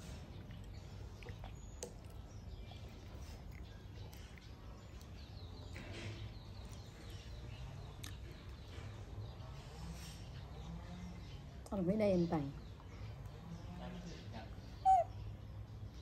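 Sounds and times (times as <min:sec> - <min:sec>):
faint bird chirps: 0:12.2 - 0:16.0.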